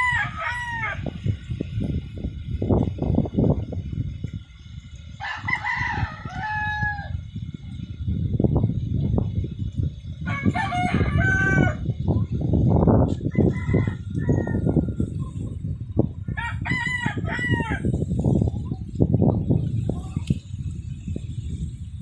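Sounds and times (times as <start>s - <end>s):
roosters crowing: 0.0s - 1.6s, 5.1s - 7.4s, 10.2s - 12.0s, 13.0s - 18.3s.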